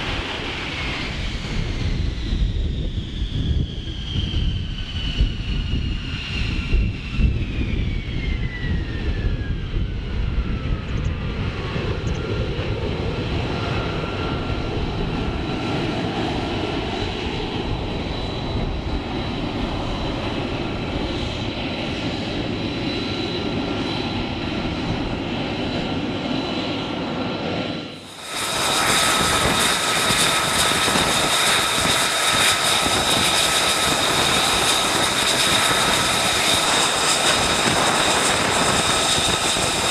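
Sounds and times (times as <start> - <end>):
jet engine whining and roaring: 0.0 - 39.9.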